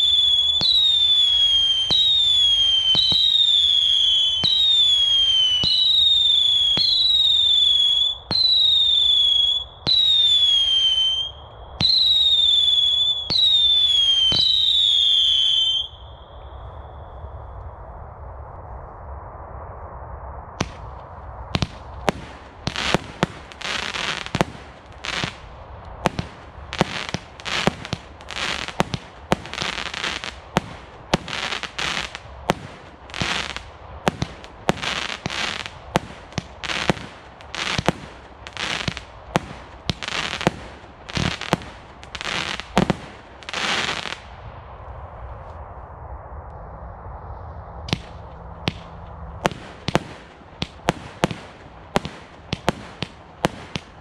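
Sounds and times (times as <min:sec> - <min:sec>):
firework hiss: 0:20.6 - 0:44.5.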